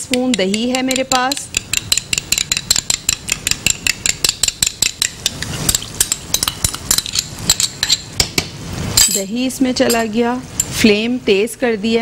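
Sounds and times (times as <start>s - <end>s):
spoon clinking against glass bowl: 0.0s - 8.1s, 9.8s - 10.8s.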